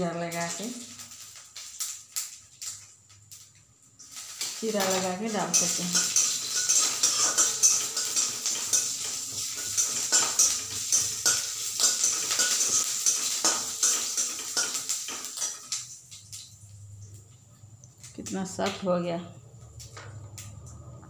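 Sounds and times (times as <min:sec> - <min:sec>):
chillies frying in oil: 0:00.0 - 0:21.0
metal spatula scraping a pan: 0:04.2 - 0:15.8.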